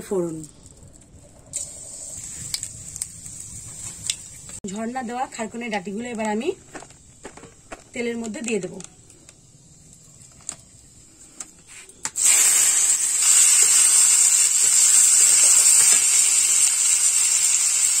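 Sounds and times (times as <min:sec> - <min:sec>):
vegetables sizzling in oil: 0:01.6 - 0:06.6, 0:12.2 - 0:18.0.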